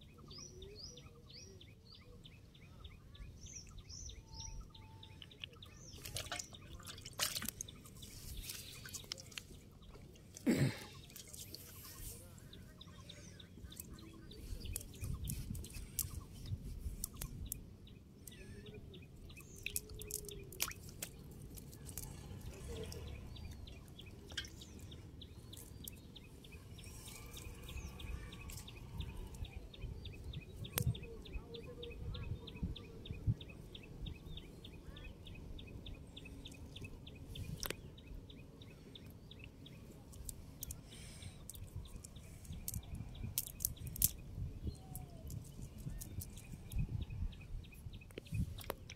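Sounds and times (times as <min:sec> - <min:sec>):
water dripping: 0:05.2 - 0:07.7, 0:19.4 - 0:23.1, 0:41.5 - 0:44.2.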